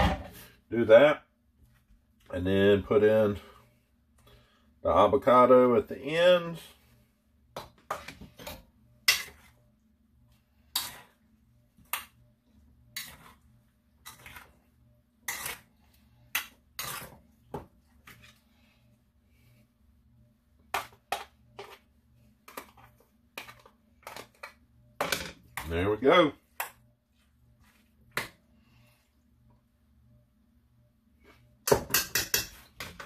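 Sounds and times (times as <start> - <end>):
metal spoon clinking and scraping: 7.9 - 9.5, 15.3 - 15.7, 16.4 - 17.2.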